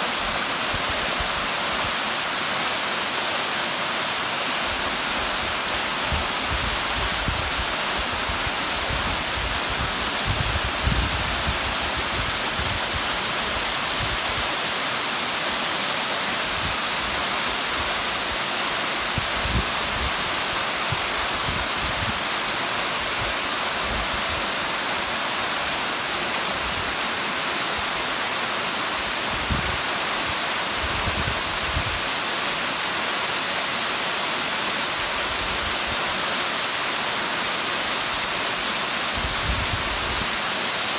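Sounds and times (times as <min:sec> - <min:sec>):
waterfall rushing and splashing: 0:00.0 - 0:40.9.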